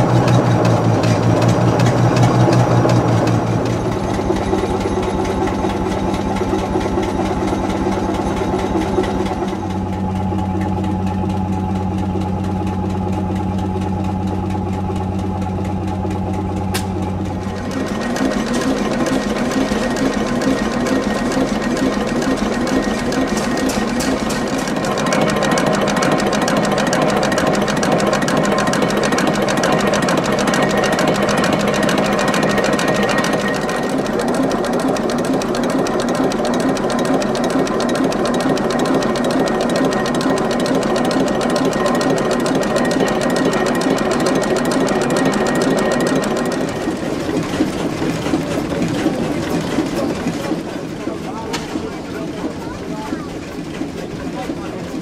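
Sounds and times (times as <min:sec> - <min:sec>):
diesel engine clattering: 0:00.0 - 0:55.0.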